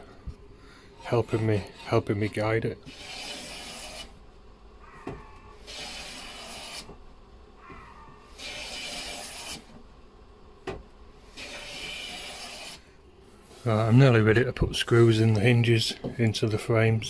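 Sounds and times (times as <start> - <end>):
hand plane shaving wood: 1.1 - 4.1, 5.6 - 6.9, 8.3 - 9.7, 11.3 - 12.8.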